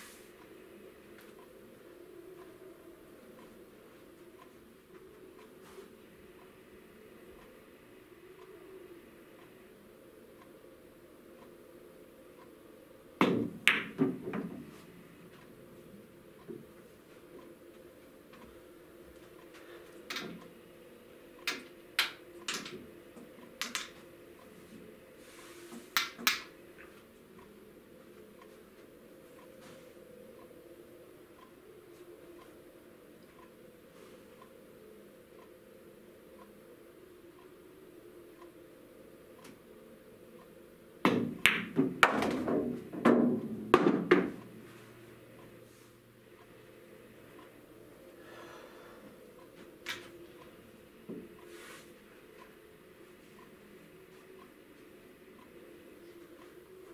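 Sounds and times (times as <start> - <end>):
billiard balls clacking: 13.2 - 14.7, 41.1 - 44.4.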